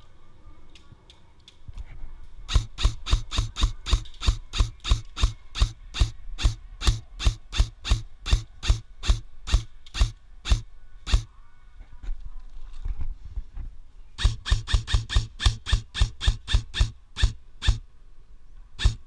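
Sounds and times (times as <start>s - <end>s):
airsoft rifle shots: 2.5s - 11.3s, 14.2s - 17.8s, 18.8s - 19.0s.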